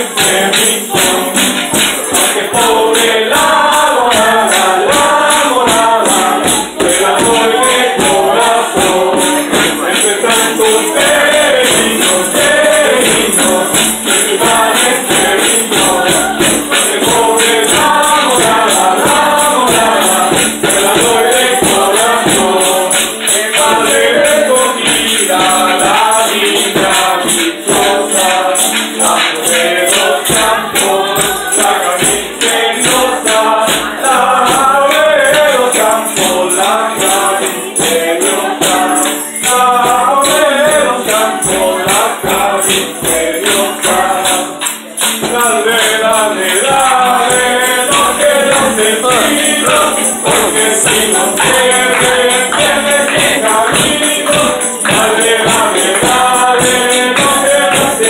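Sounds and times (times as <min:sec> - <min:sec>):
group of people singing: 0:00.0 - 0:58.0
tambourines and maracas shaking: 0:00.0 - 0:58.0.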